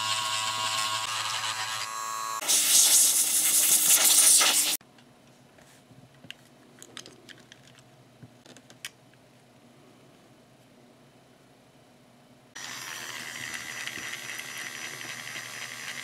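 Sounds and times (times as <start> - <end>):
airbrush hissing: 2.4 - 4.8.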